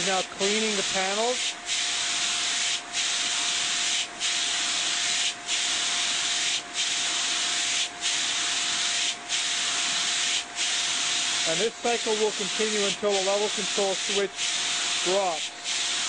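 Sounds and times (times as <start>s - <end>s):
spray jets hissing: 0.0s - 16.0s.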